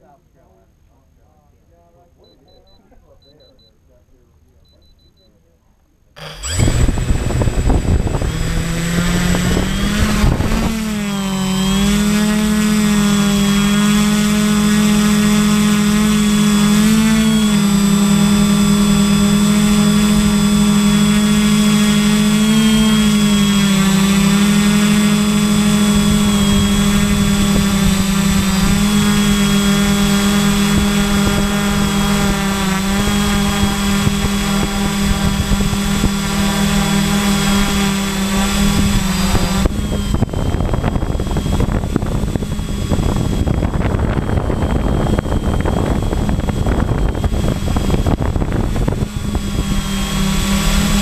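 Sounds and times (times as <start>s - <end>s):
drone propellers buzzing: 6.2s - 51.0s
gusty rumbling: 6.4s - 13.5s, 38.4s - 51.0s.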